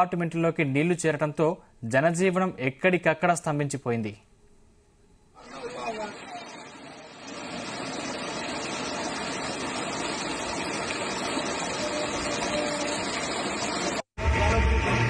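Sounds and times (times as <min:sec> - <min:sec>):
floodwater rushing: 0:05.4 - 0:14.1.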